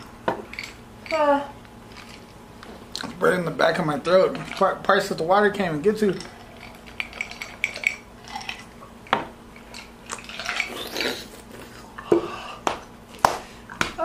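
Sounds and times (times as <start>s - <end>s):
noisy mouth breathing: 10.2s - 12.8s.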